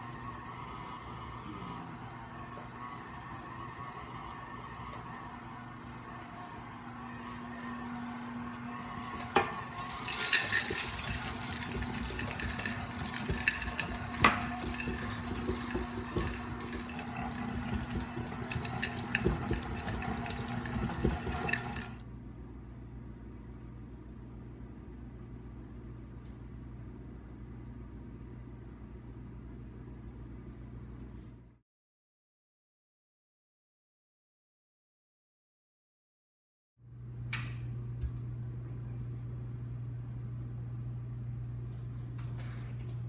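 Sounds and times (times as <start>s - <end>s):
mixer beater clattering: 9.8s - 22.0s
stand mixer motor whine: 10.5s - 22.0s.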